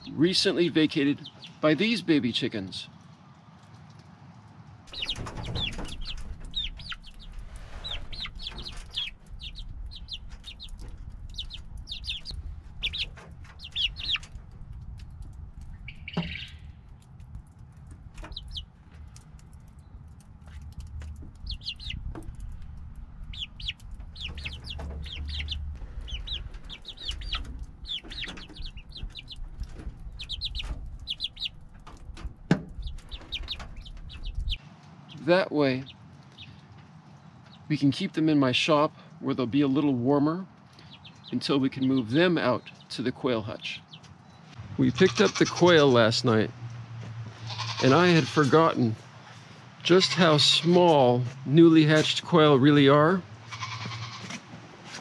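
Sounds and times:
steady low rumble: 4.6 - 35.1
young chickens clucking and peeping: 4.9 - 17.2, 17.8 - 18.7, 19.4 - 22.6, 23.2 - 36.8, 40.8 - 46.5.

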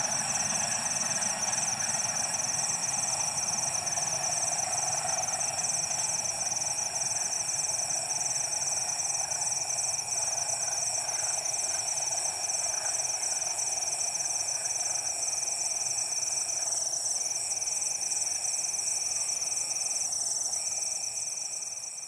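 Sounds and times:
distant train rumble: 0.0 - 15.0
crickets and insects trilling: 0.0 - 22.0.

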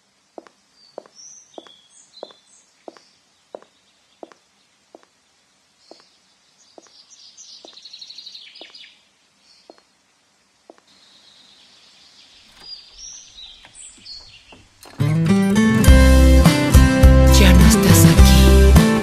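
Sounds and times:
high heels on stone paving: 0.3 - 5.2, 5.9 - 6.1
birds chirping and trilling: 0.4 - 10.0, 10.7 - 15.0.

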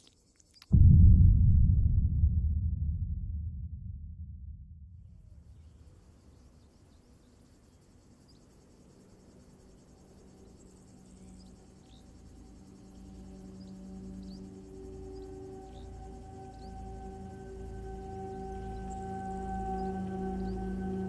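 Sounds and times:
low sustained music drone: 9.0 - 21.0.

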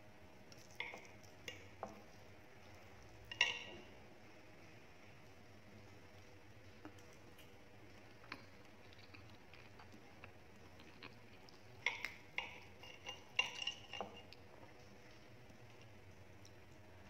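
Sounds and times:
cutlery clinking on a plate: 3.3 - 3.9, 11.9 - 14.4.

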